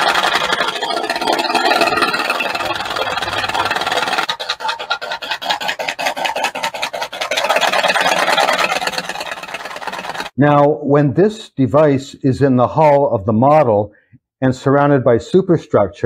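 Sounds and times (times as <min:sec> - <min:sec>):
metal balls rattling in tin can: 0:00.0 - 0:10.3
electric motor: 0:00.0 - 0:10.4.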